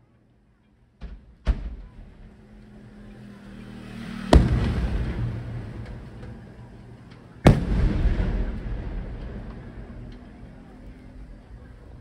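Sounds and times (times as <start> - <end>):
echoing firework rumble: 3.9 - 12.0
small firework cracks: 4.3 - 11.5.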